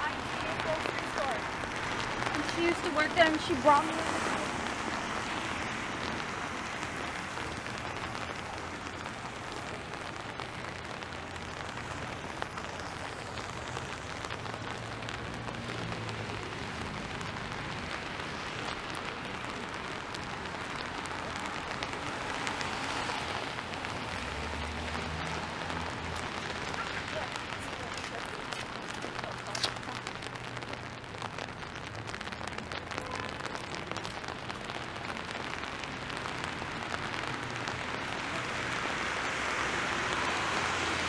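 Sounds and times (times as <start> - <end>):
passing traffic rumble: 0.0 - 41.0
rain hissing on pavement: 0.0 - 41.0.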